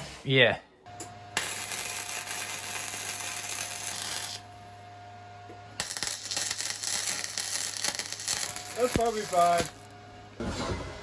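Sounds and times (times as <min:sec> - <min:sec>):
welder arc crackling and sizzling: 0:01.3 - 0:04.8, 0:05.8 - 0:10.0.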